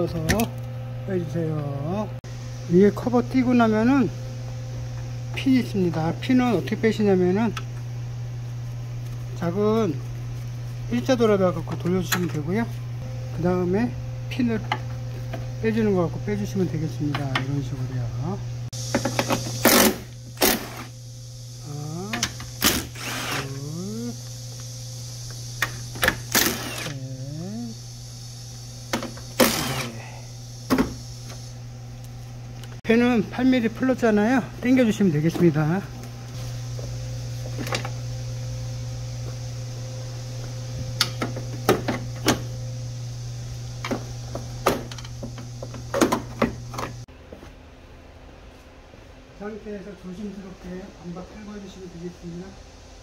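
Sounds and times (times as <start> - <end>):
low machine hum: 0.0 - 53.0
short rising whine: 18.1 - 31.7.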